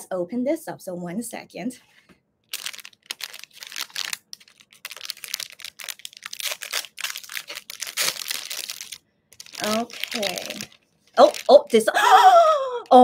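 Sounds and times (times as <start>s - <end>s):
plastic bag crinkling: 2.5s - 12.2s.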